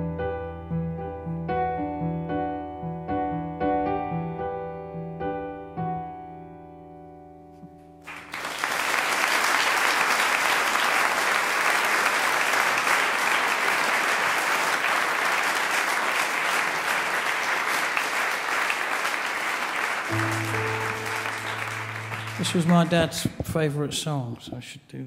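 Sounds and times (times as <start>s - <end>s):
audience applause: 8.1s - 23.4s
piano chord: 20.1s - 23.5s.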